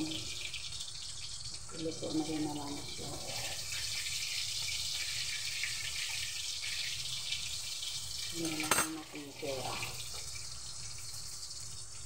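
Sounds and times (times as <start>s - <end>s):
meat sizzling in hot oil: 0.0s - 12.0s.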